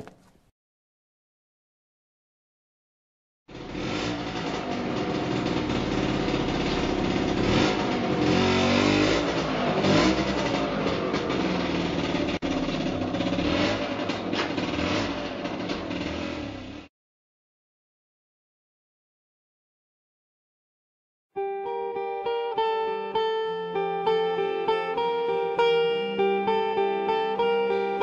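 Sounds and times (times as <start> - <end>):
small vehicle engine running: 3.5 - 16.9.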